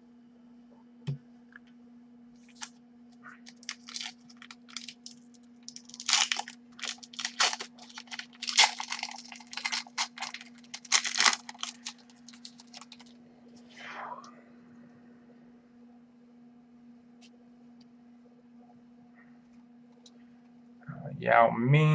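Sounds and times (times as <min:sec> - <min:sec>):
trading cards rustling: 0:02.4 - 0:02.7, 0:03.4 - 0:13.1.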